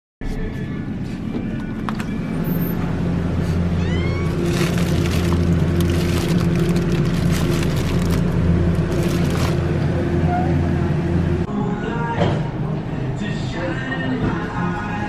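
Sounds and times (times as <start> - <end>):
cooler humming: 0.4 - 11.5
plastic bag crinkling: 4.2 - 9.7.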